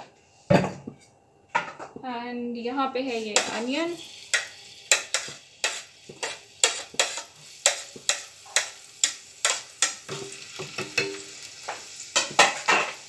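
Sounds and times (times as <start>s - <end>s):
onion sizzling in frying pan: 3.0s - 13.0s
scraping onion off plate: 4.3s - 8.8s.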